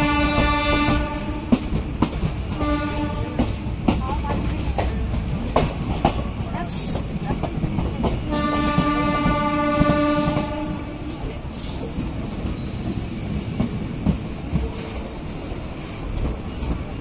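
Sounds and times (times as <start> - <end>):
train horn: 0.0 - 1.6, 2.5 - 3.6, 8.3 - 11.1
train wheels clattering on rails: 0.0 - 17.0.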